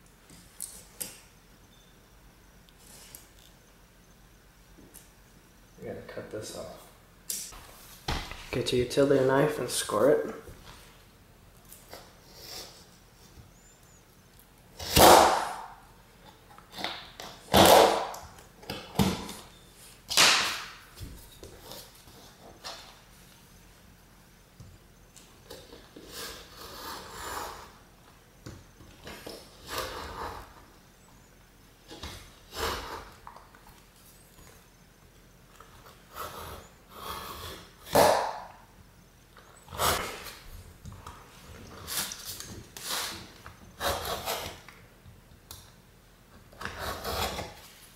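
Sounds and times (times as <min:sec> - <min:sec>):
utility knife scraping drywall paper: 0:26.0 - 0:27.8, 0:41.8 - 0:44.7, 0:46.6 - 0:47.9.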